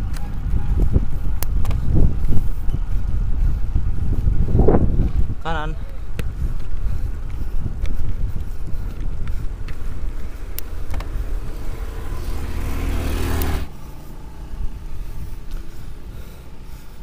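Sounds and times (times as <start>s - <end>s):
wind rumble on microphone: 0.0s - 17.0s
vehicle engine passing: 8.7s - 17.0s.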